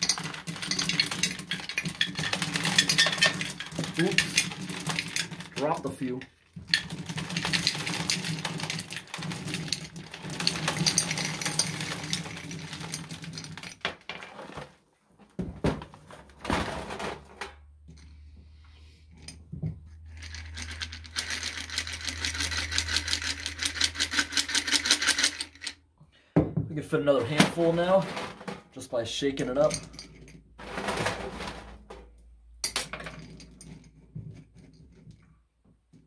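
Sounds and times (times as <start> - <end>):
candies pouring into glass jar: 0.0 - 13.8, 20.1 - 25.7
candies rattling in shaken jar: 0.0 - 13.8, 19.9 - 25.8.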